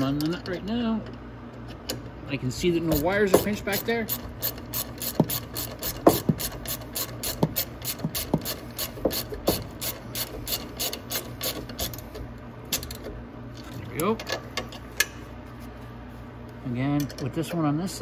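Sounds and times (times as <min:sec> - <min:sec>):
ratchet wrench clicking: 0:02.9 - 0:12.0.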